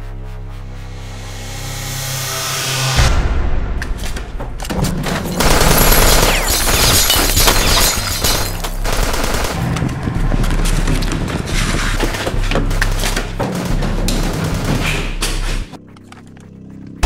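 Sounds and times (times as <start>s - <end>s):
low bass: 0.0s - 5.4s, 8.6s - 16.4s
gunshots: 5.3s - 10.1s.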